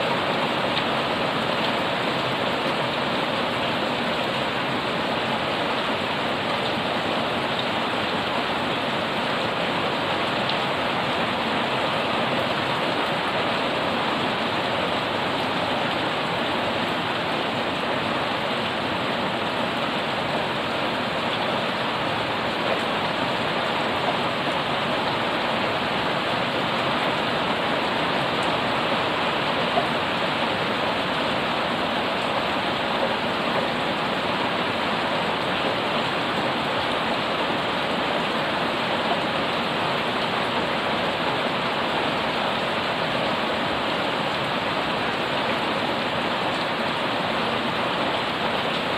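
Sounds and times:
heavy rain on paving: 0.0s - 48.9s.

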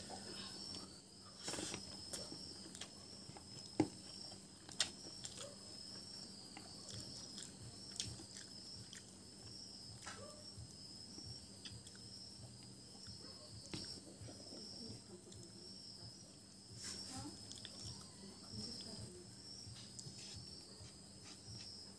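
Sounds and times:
crickets chirping: 0.0s - 21.9s
person chewing food: 0.1s - 10.2s, 11.6s - 14.0s, 17.5s - 18.1s.

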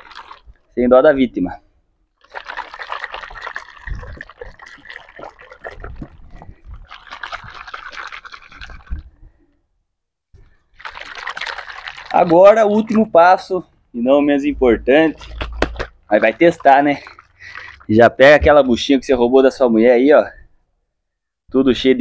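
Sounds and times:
liquid sloshing in shaken bottle: 0.0s - 0.7s, 2.2s - 9.4s, 10.4s - 13.8s, 14.9s - 18.9s.

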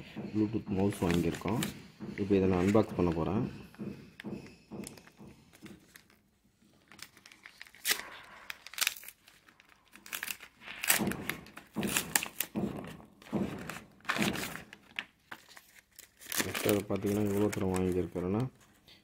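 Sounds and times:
paper envelope tearing and crumpling: 5.8s - 12.6s, 13.5s - 18.5s.

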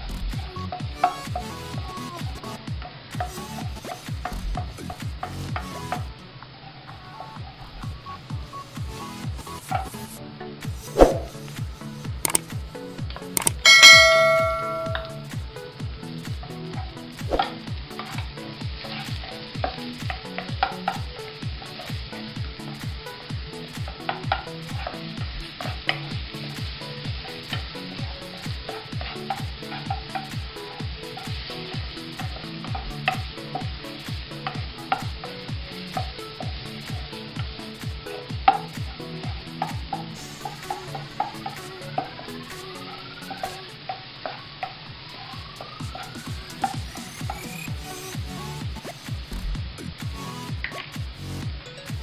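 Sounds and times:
garlic and onion sizzling in oil: 0.3s - 51.5s
spatula tapping pan: 13.4s - 15.2s, 27.2s - 30.5s.

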